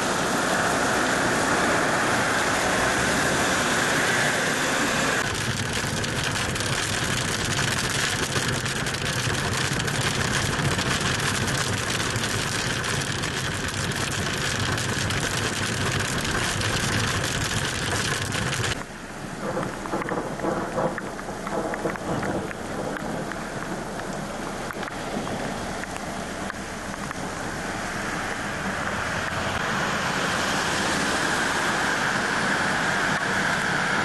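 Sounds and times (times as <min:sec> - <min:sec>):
hail pelting down: 0:05.2 - 0:18.8, 0:19.4 - 0:27.5.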